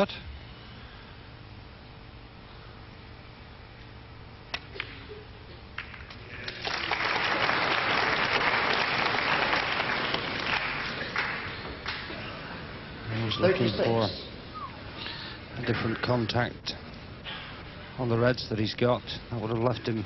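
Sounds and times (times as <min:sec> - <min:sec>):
audience applause: 0:05.8 - 0:12.2.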